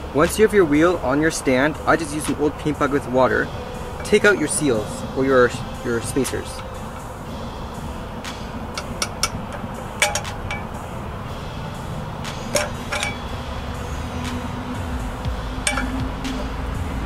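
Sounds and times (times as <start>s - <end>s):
pliers clinking on steel: 12.5s - 13.2s, 15.7s - 16.0s.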